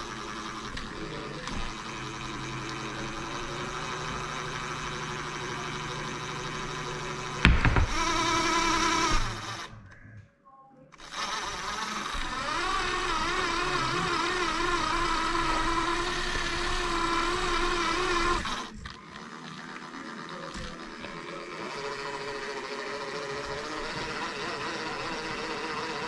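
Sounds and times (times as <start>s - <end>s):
toy car motor whining: 0.0s - 9.7s, 11.0s - 26.0s
knock: 7.4s - 9.3s.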